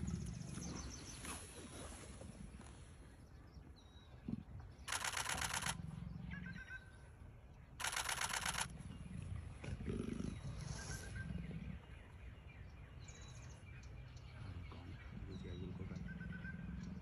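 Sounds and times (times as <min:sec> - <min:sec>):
rapid camera shutter clicks: 0:04.9 - 0:05.8, 0:07.8 - 0:08.7.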